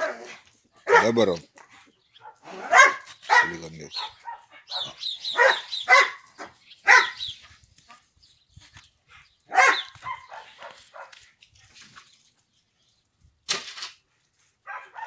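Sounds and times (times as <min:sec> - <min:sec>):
dog barking: 0:00.8 - 0:01.2, 0:02.2 - 0:07.2, 0:09.5 - 0:11.2, 0:14.7 - 0:15.0.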